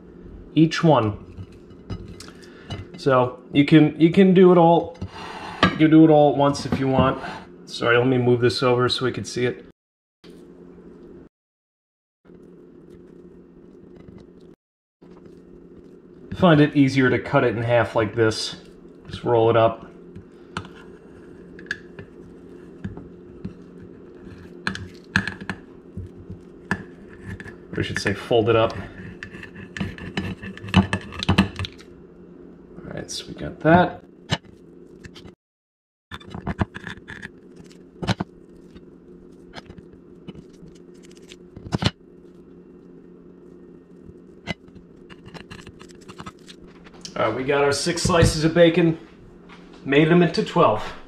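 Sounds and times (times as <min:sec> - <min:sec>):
steady low hum: 0:00.0 - 0:09.7, 0:10.3 - 0:11.3, 0:12.3 - 0:35.4, 0:36.1 - 0:51.0.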